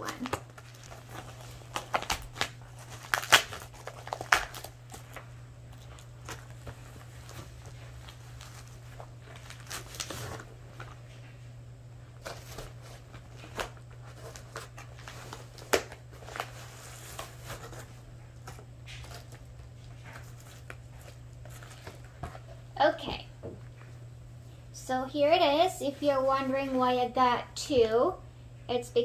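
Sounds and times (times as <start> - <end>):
plastic mailer bag crinkling: 0.0 - 11.3, 12.1 - 22.5.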